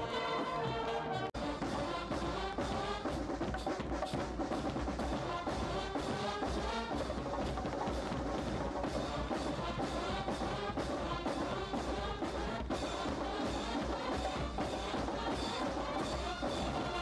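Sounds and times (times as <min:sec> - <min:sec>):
military brass band playing a march: 0:00.0 - 0:17.0
steady drumbeat: 0:00.0 - 0:17.0.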